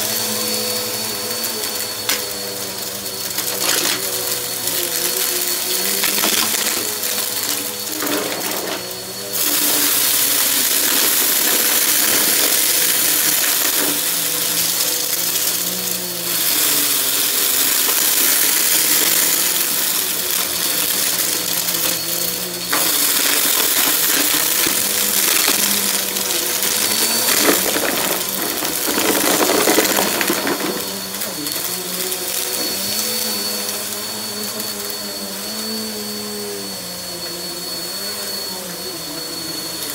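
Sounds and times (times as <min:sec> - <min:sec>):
vacuum cleaner motor whine: 0:00.0 - 0:39.9
vacuum rushing hiss: 0:00.0 - 0:39.9
debris crackling and rattling: 0:03.3 - 0:33.5.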